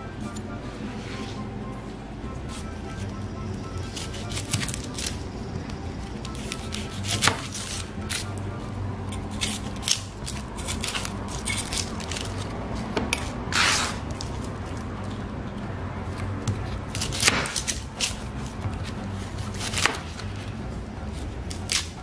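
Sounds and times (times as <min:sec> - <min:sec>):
knife scraping on cutting board: 0:03.8 - 0:05.2, 0:06.2 - 0:08.3, 0:13.2 - 0:14.2.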